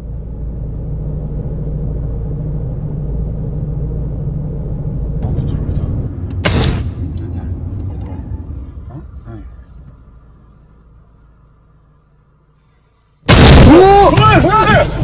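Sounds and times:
car engine running: 0.0 - 15.0
road rumble: 0.0 - 15.0
loud burst of noise: 13.3 - 15.0.

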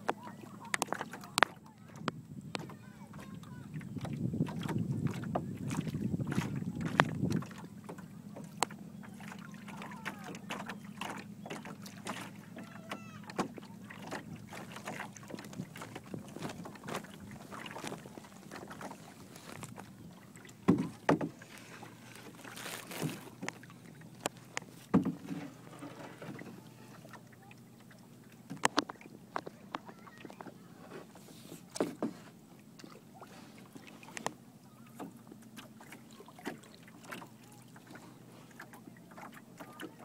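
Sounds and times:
wooden spars knocking and creaking: 0.0 - 27.0, 28.4 - 32.4
water lapping against boat hull: 0.0 - 40.0.

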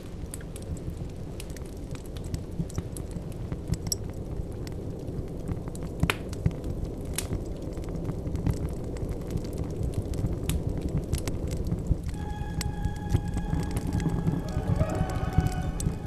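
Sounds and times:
crackles and clicks: 0.0 - 16.0
low rumble: 11.8 - 16.0.

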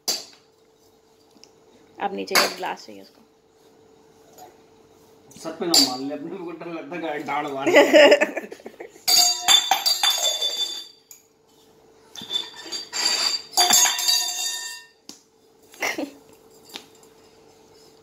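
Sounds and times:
steel tumbler clinking on stone: 9.1 - 11.3, 12.2 - 15.0.

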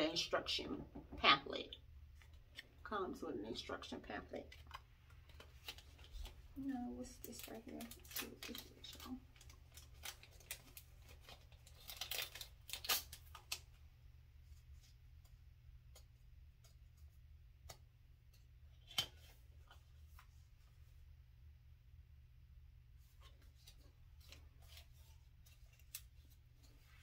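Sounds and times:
packaging rustling: 4.5 - 13.8.

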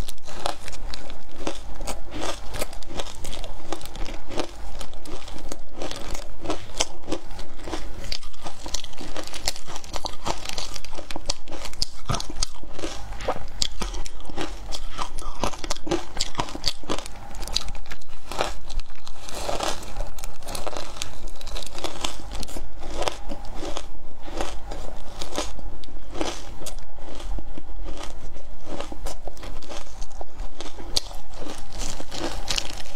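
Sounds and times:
crushed ice crunching: 30.6 - 32.9.

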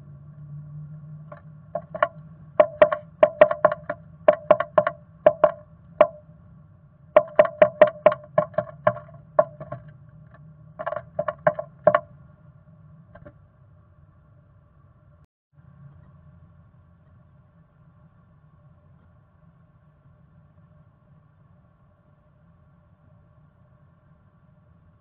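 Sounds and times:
low steady hum: 0.0 - 25.0
bird pecking on wood: 1.8 - 6.2, 7.2 - 9.9, 10.8 - 12.0.

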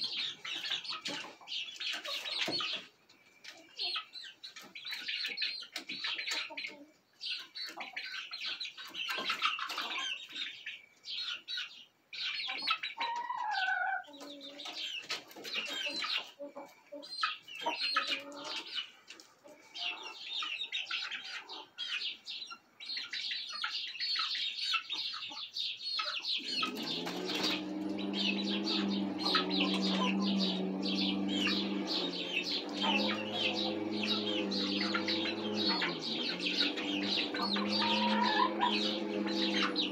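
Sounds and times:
chicks cheeping and chirping: 0.0 - 39.9
low clucking calls: 26.4 - 39.9
steady low hum: 26.4 - 39.9
wing flaps: 26.4 - 39.9.

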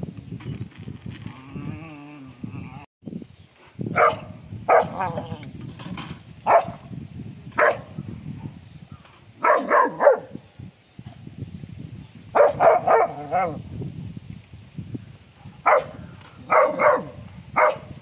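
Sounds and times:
dog barking and yipping: 4.0 - 5.4, 6.4 - 6.8, 7.6 - 7.9, 9.4 - 10.4, 12.4 - 13.6, 15.6 - 18.0.

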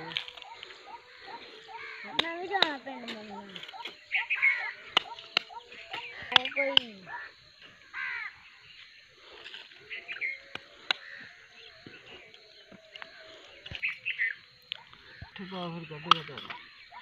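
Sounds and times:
crows cawing: 0.0 - 17.0.

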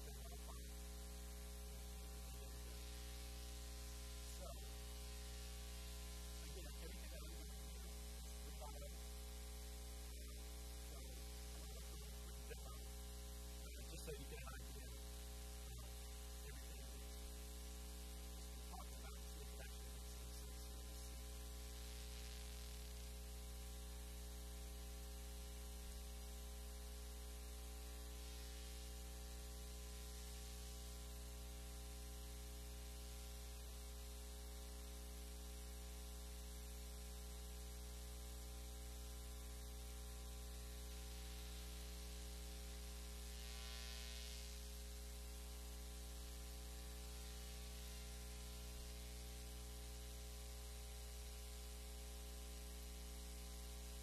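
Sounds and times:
background hiss: 0.0 - 12.9, 13.5 - 23.1
electrical mains hum: 0.0 - 54.0.

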